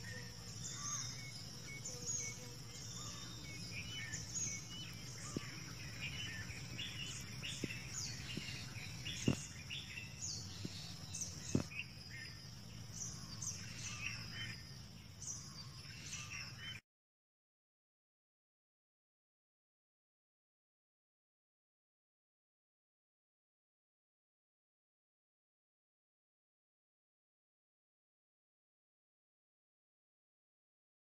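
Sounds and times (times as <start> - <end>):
birds chirping and calling: 0.0 - 16.8
steady high-pitched hum: 0.0 - 16.8.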